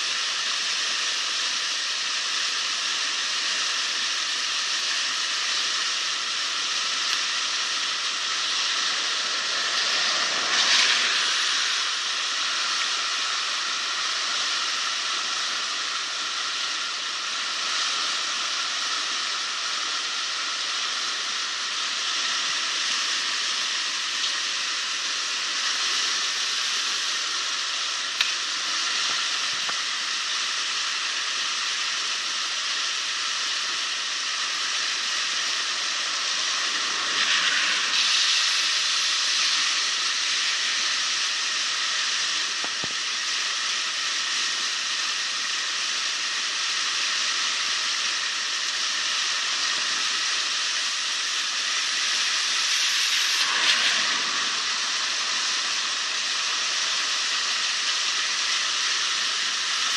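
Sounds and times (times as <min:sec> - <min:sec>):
floodwater rushing against pipe: 0:03.6 - 0:31.0, 0:46.9 - 0:59.9.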